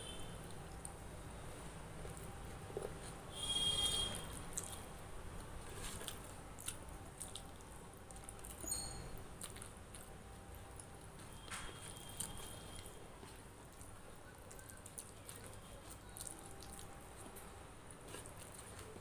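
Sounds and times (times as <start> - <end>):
chewing: 1.9 - 19.0.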